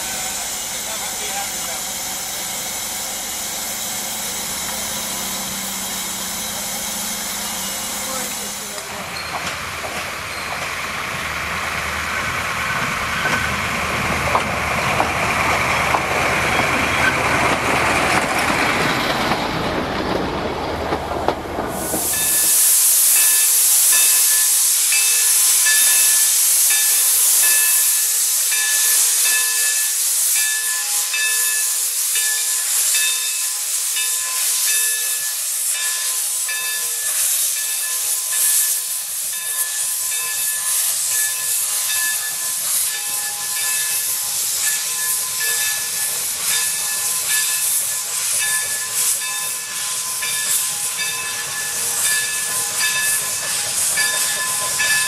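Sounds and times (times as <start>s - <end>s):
steam venting hiss: 0.0s - 13.1s, 21.6s - 55.0s.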